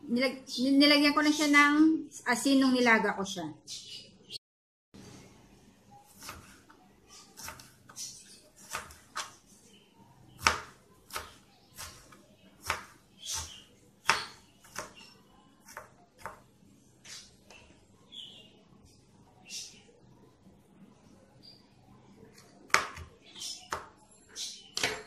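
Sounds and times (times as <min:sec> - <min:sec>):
knife chopping on plastic board: 0:06.1 - 0:06.7, 0:07.4 - 0:09.3, 0:10.4 - 0:15.0, 0:15.6 - 0:16.4, 0:22.4 - 0:24.0, 0:24.8 - 0:25.0.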